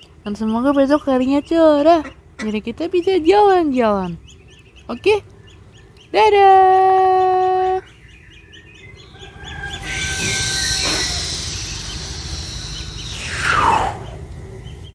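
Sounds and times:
ducklings peeping: 0:00.0 - 0:14.9
broad hiss with downward swish: 0:10.8 - 0:14.2.

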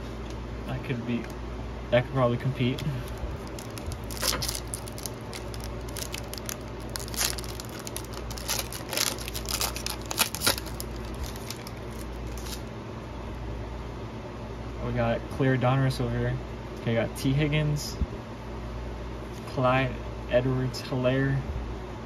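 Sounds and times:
steady low hum: 0:00.0 - 0:22.0
foil wrapper tearing and crinkling: 0:03.1 - 0:12.7.

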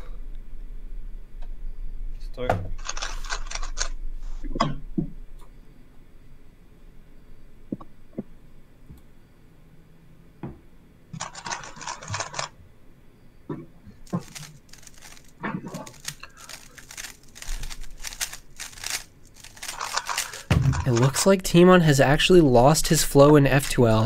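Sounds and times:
puzzle cube clicking: 0:14.1 - 0:21.2.

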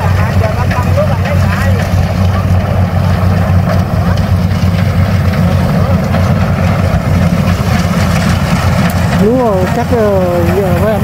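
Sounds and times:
tractor engine idling: 0:00.0 - 0:11.0.

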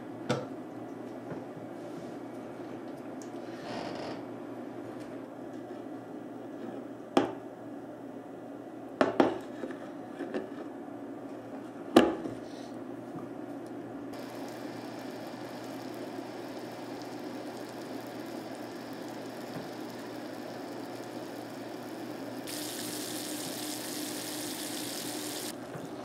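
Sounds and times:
syrup boiling with bubbling hiss: 0:14.2 - 0:25.6.

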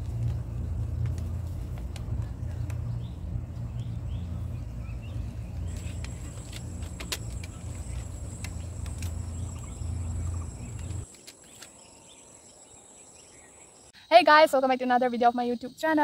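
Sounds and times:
high insect drone: 0:03.7 - 0:14.4.

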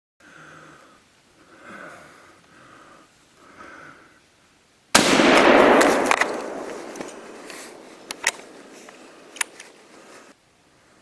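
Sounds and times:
faint breaths: 0:00.2 - 0:04.6, 0:07.1 - 0:11.0
loud gunshot: 0:04.9 - 0:07.8.

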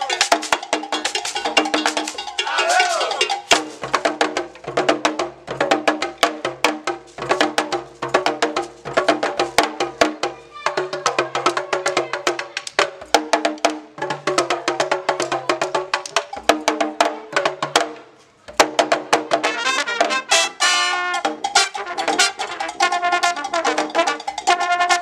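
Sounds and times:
hand drums: 0:00.0 - 0:25.0
trumpets trombone and tuba: 0:19.3 - 0:25.0.

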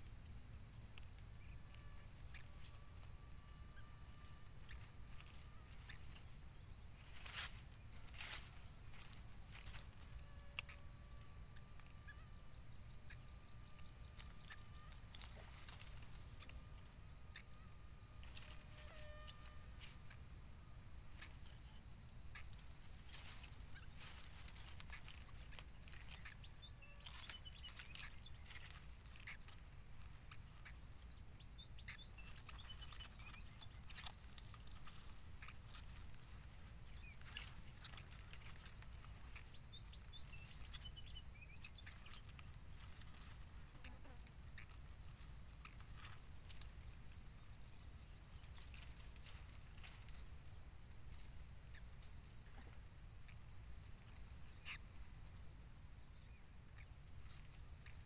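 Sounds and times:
small clicks and rustles: 0:07.0 - 0:10.9, 0:13.7 - 0:16.9, 0:21.1 - 0:50.5.

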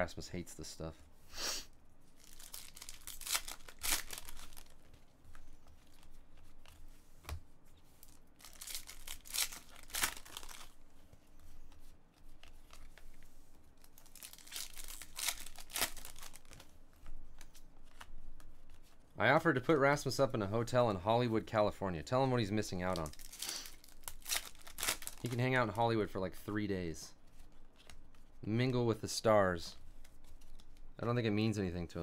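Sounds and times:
foil wrapper tearing and crinkling: 0:02.2 - 0:04.8, 0:08.4 - 0:10.7, 0:13.9 - 0:16.6, 0:23.0 - 0:25.2.

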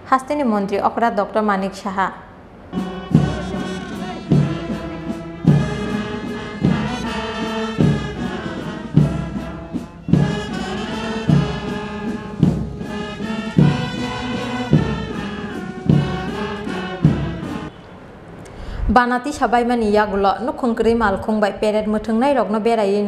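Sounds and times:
brass band playing slow march: 0:02.6 - 0:17.8
bass drum beats: 0:02.8 - 0:17.6.

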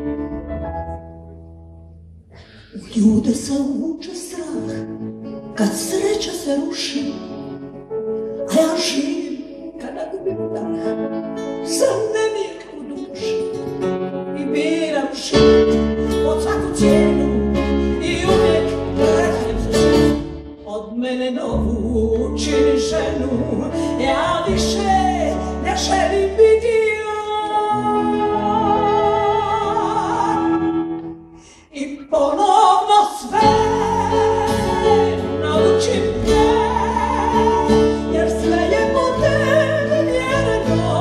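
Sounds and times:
acoustic guitar: 0:00.0 - 0:41.0
woman singing: 0:02.8 - 0:07.5, 0:08.5 - 0:10.9, 0:11.6 - 0:13.7, 0:14.3 - 0:41.0.

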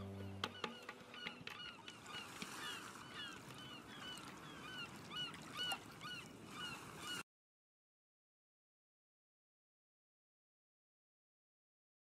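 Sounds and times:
seabirds calling: 0:00.0 - 0:07.2.

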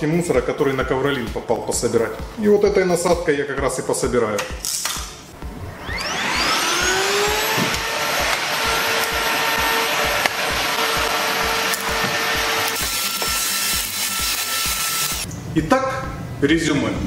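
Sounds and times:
stick vacuum motor whine: 0:05.7 - 0:15.3.

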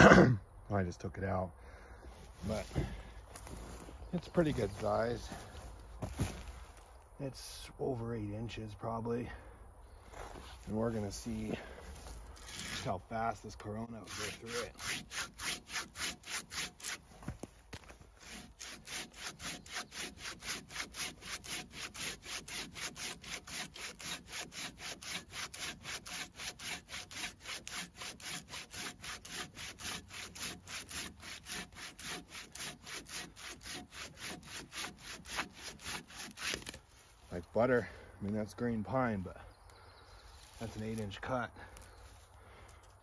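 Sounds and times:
pruning saw cutting log: 0:10.6 - 0:37.5, 0:40.4 - 0:42.1.

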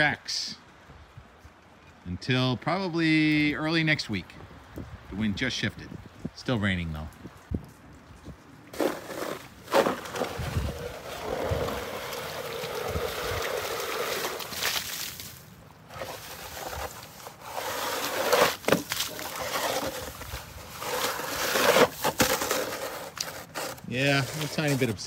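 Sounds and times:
snow shovel scraping concrete: 0:08.7 - 0:25.0.

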